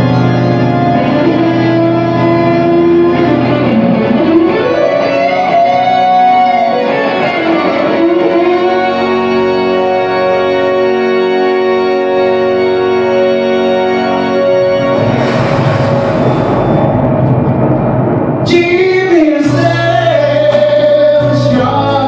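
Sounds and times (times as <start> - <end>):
electric guitar sustained notes: 0.0 - 22.0.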